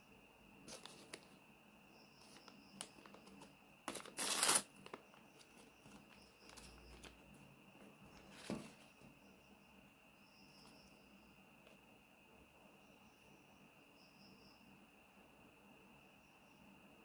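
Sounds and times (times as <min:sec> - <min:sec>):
paper crinkling and rustling: 0:00.7 - 0:01.4, 0:02.2 - 0:07.3, 0:08.1 - 0:09.0.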